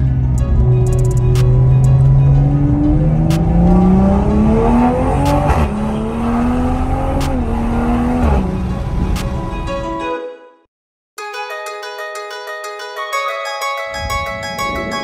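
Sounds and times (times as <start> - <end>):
car engine accelerating: 0.0 - 9.5.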